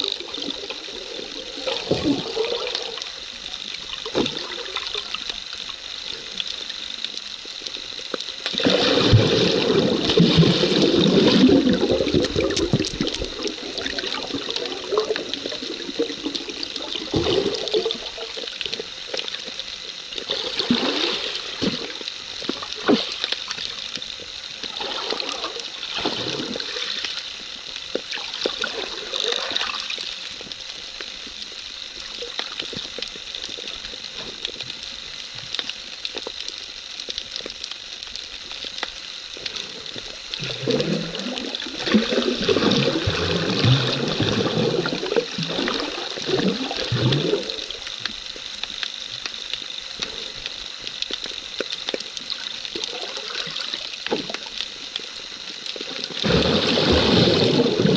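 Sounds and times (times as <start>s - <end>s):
small clicks underwater: 0.0s - 56.3s
underwater hiss: 0.0s - 57.9s
water surging whooshes: 8.5s - 23.8s, 40.3s - 47.9s, 55.5s - 57.9s.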